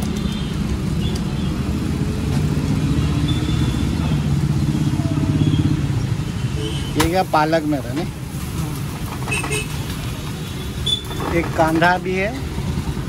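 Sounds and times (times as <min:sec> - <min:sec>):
motorcycle engine droning: 0:00.2 - 0:07.2.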